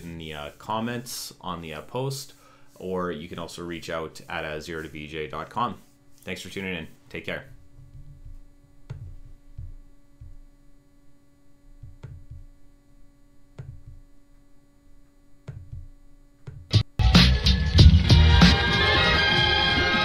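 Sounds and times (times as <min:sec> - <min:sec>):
low electrical hum: 0:00.0 - 0:17.0
low thuds: 0:07.6 - 0:10.5, 0:11.7 - 0:12.6, 0:13.6 - 0:14.1, 0:15.5 - 0:16.9.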